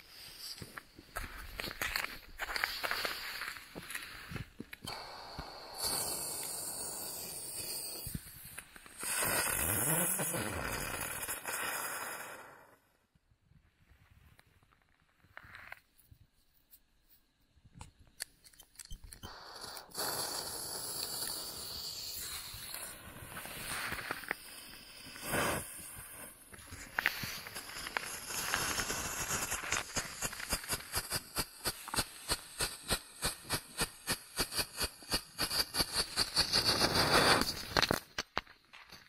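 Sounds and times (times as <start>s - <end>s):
firework fuse hissing: 0.0s - 12.9s, 19.1s - 38.4s
firework rapid sharp pops: 4.8s - 12.8s, 19.2s - 38.7s.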